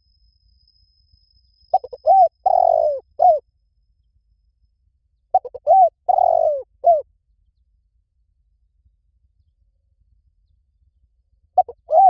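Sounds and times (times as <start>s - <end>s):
dove cooing: 1.7s - 3.4s, 5.3s - 7.0s, 11.6s - 12.0s.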